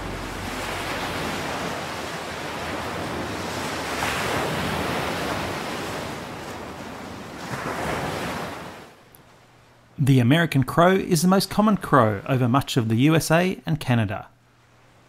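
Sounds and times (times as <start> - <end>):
ocean surf breaking on a beach: 0.0 - 9.0.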